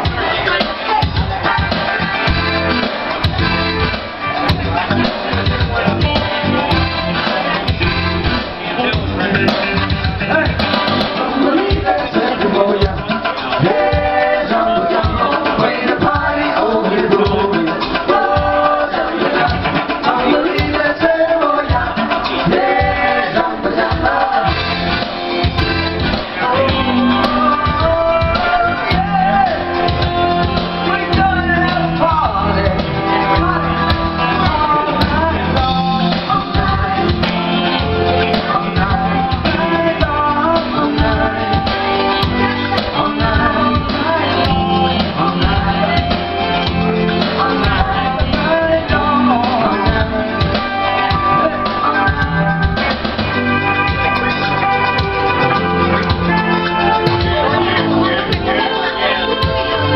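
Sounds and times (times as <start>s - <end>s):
rock band playing: 0.0s - 59.9s
women singing: 11.2s - 25.0s, 26.3s - 53.0s.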